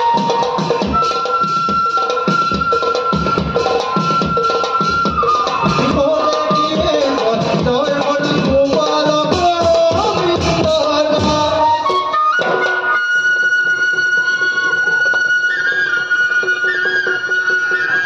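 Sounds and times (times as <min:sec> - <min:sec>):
drums beating: 0:00.0 - 0:18.0.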